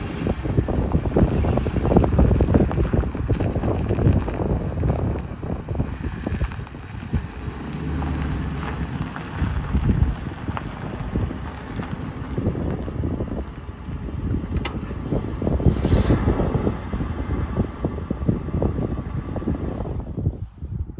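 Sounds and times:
truck engine idling: 0:00.0 - 0:15.8
wind buffeting microphone: 0:00.0 - 0:20.9.

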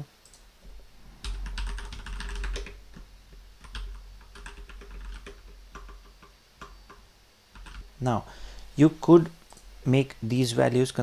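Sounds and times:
typing on keyboard: 0:01.2 - 0:02.8, 0:03.6 - 0:07.0, 0:07.6 - 0:07.9.

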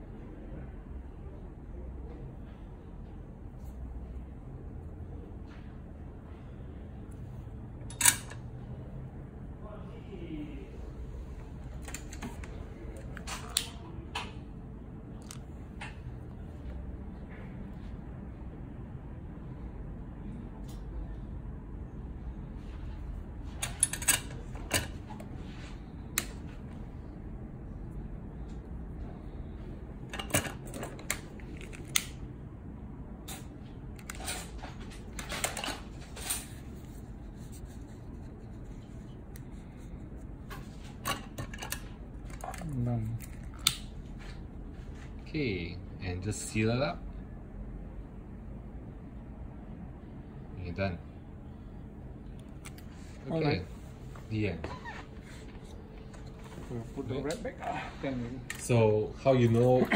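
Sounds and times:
steady low hum: 0:00.0 - 0:59.9
wires and tools clicking: 0:30.1 - 0:32.3, 0:38.4 - 0:44.0.

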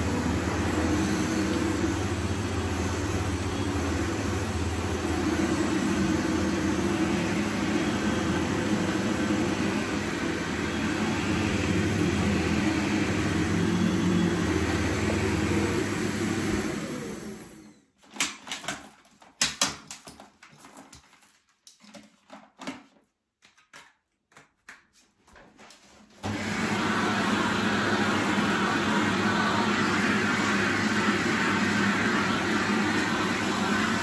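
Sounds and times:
vacuum motor winding down: 0:00.0 - 0:17.8, 0:26.2 - 0:34.0
vacuum cleaner running: 0:00.0 - 0:17.9, 0:26.2 - 0:34.0.

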